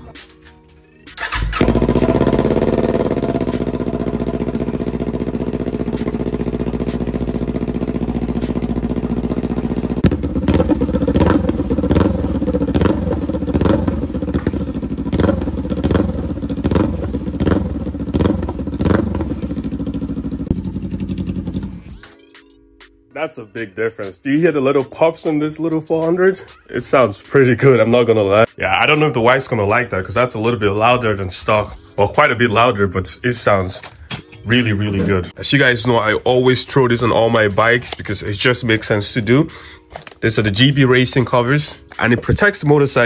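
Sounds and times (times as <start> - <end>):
exhaust pops: 1.2 - 21.8
motorcycle throttle blips: 1.2 - 21.8
motorcycle engine idling: 1.2 - 22.0.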